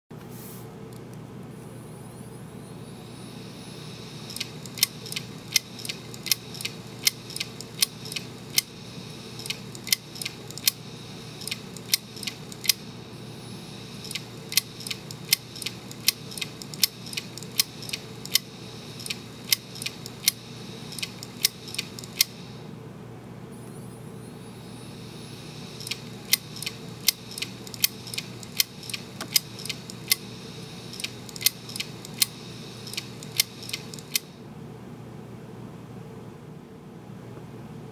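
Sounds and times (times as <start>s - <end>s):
hard disk whirring: 0.8s - 34.5s
actuator arm ticks: 4.3s - 8.8s, 9.4s - 10.8s, 11.4s - 12.8s, 14.0s - 22.3s, 25.8s - 30.3s, 30.9s - 34.3s.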